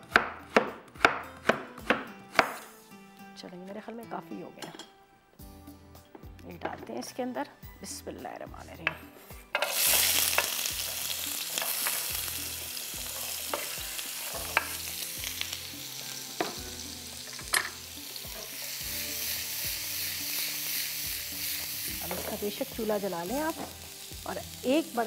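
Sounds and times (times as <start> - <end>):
kebabs sizzling in hot oil: 9.2 - 25.0.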